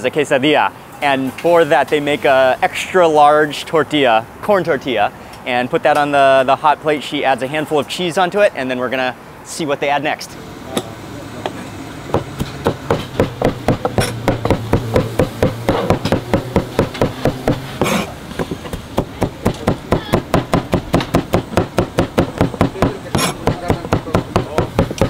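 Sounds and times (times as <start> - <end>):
cleaver chopping meat on cutting board: 12.1 - 25.0.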